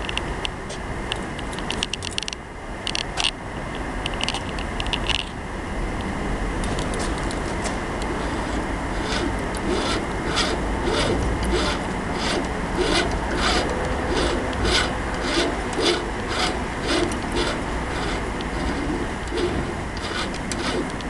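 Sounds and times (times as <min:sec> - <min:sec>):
safe lock dial rasping: 0:08.0 - 0:21.0.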